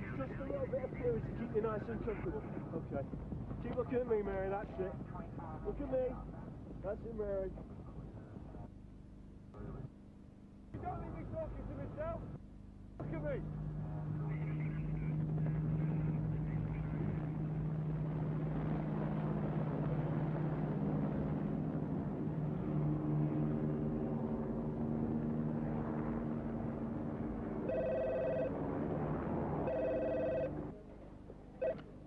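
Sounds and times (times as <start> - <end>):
helicopter engine and rotor hum: 0.0 - 8.7, 13.0 - 32.0
telephone ringing: 27.6 - 28.6, 29.6 - 30.7, 31.6 - 31.9.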